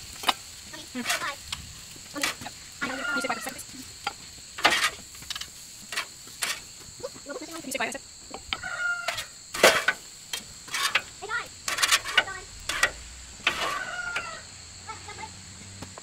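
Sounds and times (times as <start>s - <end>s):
chickens clucking: 2.2s - 5.0s, 5.9s - 10.1s, 10.8s - 15.3s
steel bowls and spoon clanking: 10.7s - 14.3s.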